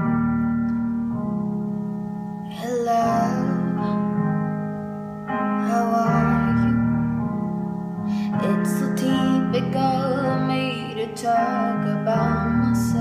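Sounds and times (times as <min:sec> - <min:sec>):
piano chords: 0:00.0 - 0:13.0
woman singing: 0:02.5 - 0:04.0, 0:05.6 - 0:07.1, 0:08.1 - 0:13.0.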